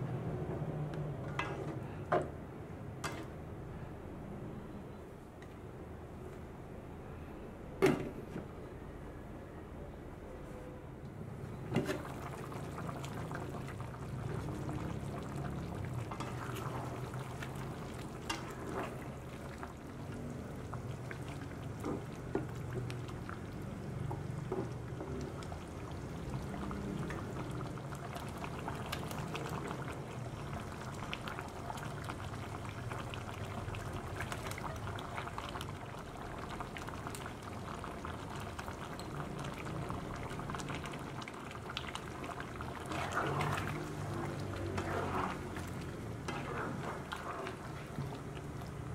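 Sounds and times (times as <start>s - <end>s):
sauce bubbling in a pan: 12.0s - 48.9s.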